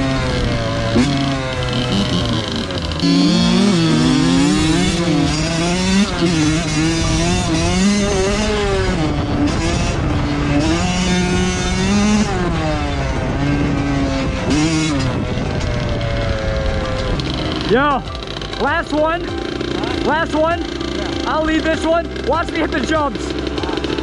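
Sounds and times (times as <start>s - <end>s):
motocross bike engine revving: 0.0s - 24.0s.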